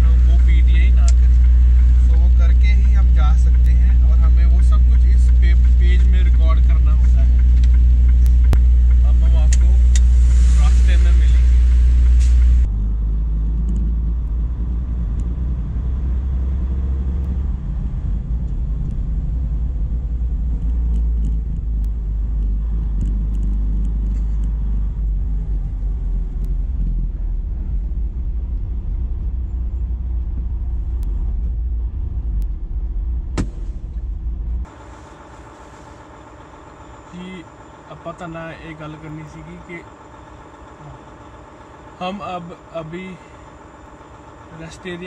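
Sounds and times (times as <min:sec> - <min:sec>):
truck engine idling: 0:00.0 - 0:45.0
truck engine rumble: 0:00.0 - 0:45.0
sharp knock: 0:33.4 - 0:33.8.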